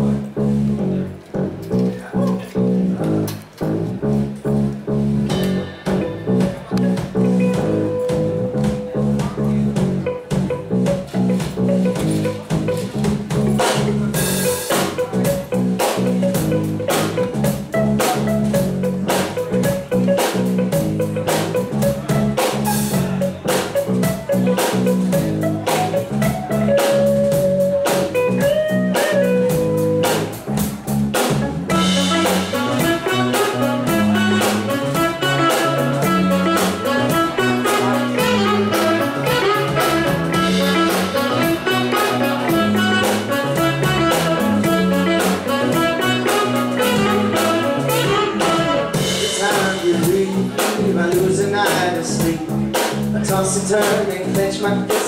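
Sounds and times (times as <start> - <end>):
drum kit beat: 0.0 - 55.0
electric bass line: 0.0 - 55.0
electric guitar: 0.0 - 55.0.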